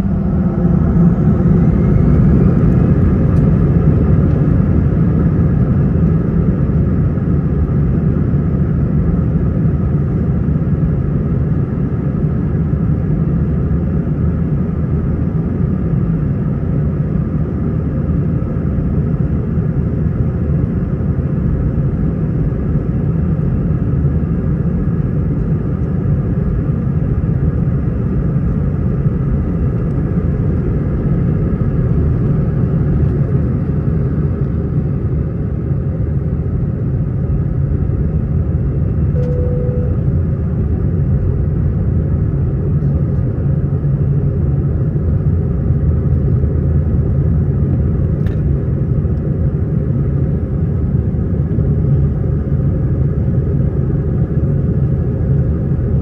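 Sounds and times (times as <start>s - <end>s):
jet engine cabin rumble: 0.0s - 56.0s.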